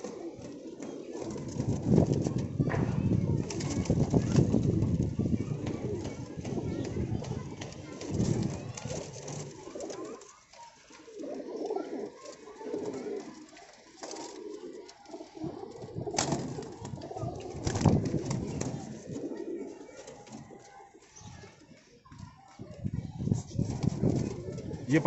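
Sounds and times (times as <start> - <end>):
pigeons cooing: 0.0 - 2.5, 3.1 - 21.2, 23.5 - 25.0.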